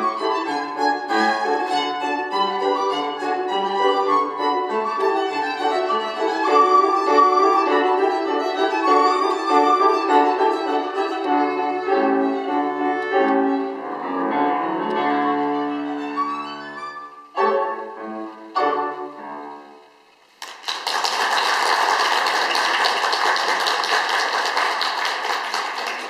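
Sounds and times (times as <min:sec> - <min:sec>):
violin and piano playing: 0:00.0 - 0:20.0
audience applause: 0:20.4 - 0:26.0.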